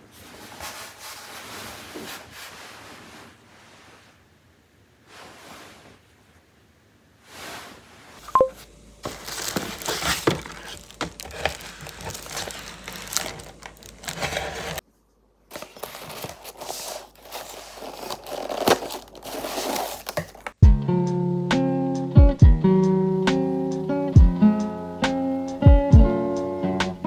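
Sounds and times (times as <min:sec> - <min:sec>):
brief sharp tone: 0:08.3 - 0:08.6
paper wrapping crinkling: 0:09.0 - 0:14.8, 0:15.5 - 0:20.6.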